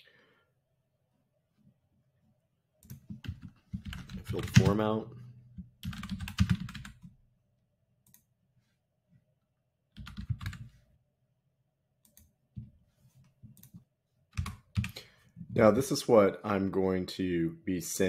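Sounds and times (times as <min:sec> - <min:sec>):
keyboard typing: 0:02.8 - 0:04.9, 0:05.5 - 0:07.1, 0:10.0 - 0:10.8, 0:14.4 - 0:15.0.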